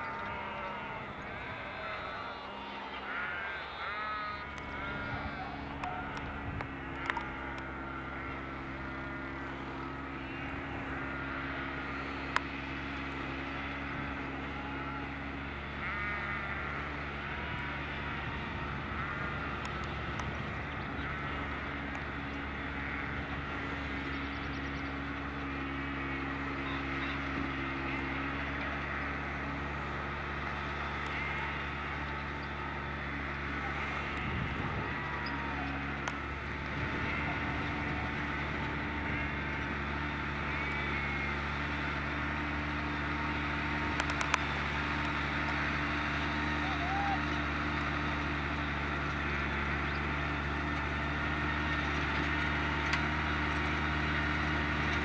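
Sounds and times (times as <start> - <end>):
faint bird calls: 0.0 - 8.7, 13.6 - 29.6
tractor diesel engine running: 0.0 - 55.0
sharp clicks: 43.9 - 44.4.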